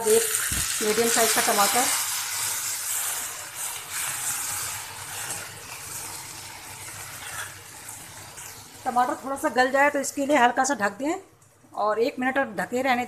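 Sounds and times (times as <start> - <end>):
tomatoes sizzling in hot oil: 0.0 - 11.2.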